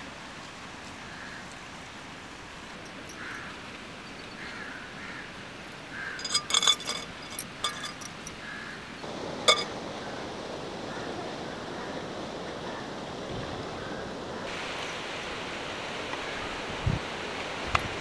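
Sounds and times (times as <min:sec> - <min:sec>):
ringing glass clinks: 0:06.2 - 0:08.4, 0:09.5 - 0:09.7.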